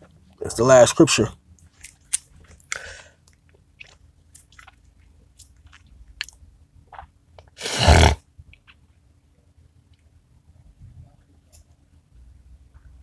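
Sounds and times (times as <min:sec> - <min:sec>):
crunchy chewing: 0:01.6 - 0:08.8.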